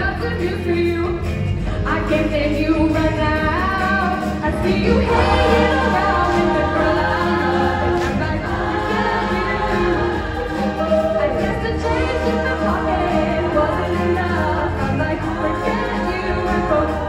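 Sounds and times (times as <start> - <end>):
instrumental accompaniment: 0.0 - 17.0
women's chorus singing: 4.5 - 17.0.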